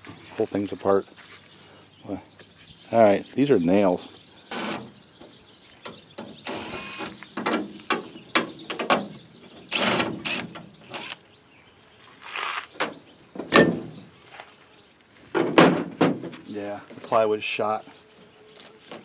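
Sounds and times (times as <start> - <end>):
cordless drill running: 4.5 - 4.8, 6.4 - 7.2, 9.7 - 11.2
metal clicks and knocks: 7.4 - 9.1.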